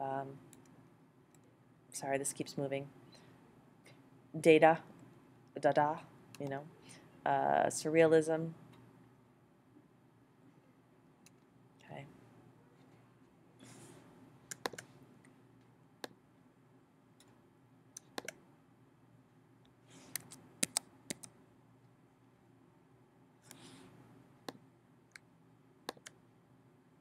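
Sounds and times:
computer mouse clicks: 14.5 - 14.9, 18.0 - 18.4, 20.1 - 21.3, 25.9 - 26.2.

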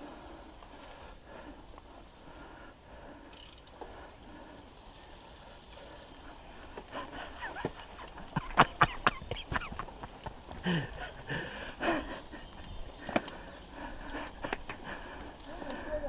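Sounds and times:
bike tyres rolling on dirt: 0.0 - 16.0
bike clattering over bumps: 6.7 - 15.2.

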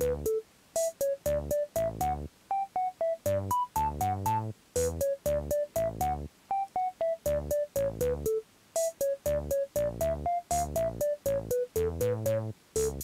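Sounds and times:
bouncy background music: 0.0 - 13.0.

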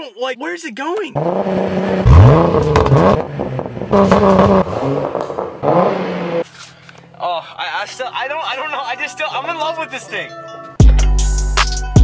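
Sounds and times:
car engine revving: 1.2 - 6.5.

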